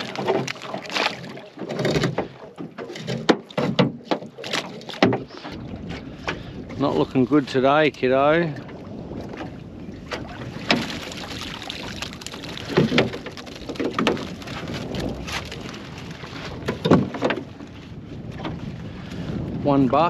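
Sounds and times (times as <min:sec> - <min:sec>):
pot frame knocking against boat: 0:00.0 - 0:05.3, 0:16.6 - 0:17.5
water splashing and dripping: 0:00.0 - 0:07.2, 0:07.9 - 0:17.6
wind buffeting microphone: 0:00.0 - 0:20.0.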